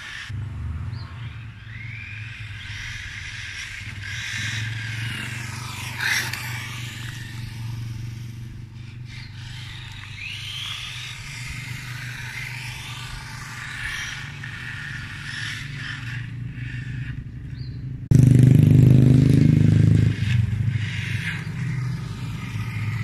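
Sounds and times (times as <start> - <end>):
electric motor whine: 0.0 - 17.3, 19.6 - 23.0
tyre noise on asphalt: 0.0 - 23.0.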